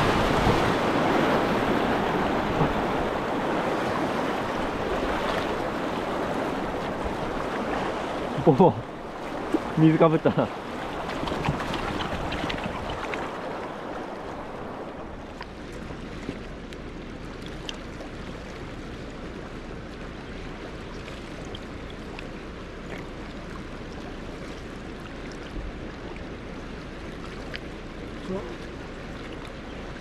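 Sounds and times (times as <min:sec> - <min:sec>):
river water rushing over stones: 0:00.0 - 0:30.0
small splashes: 0:00.0 - 0:30.0.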